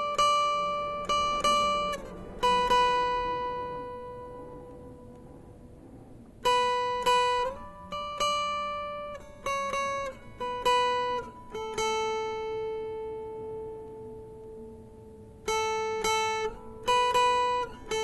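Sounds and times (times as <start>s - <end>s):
plucked guitar single notes: 0.0s - 18.0s.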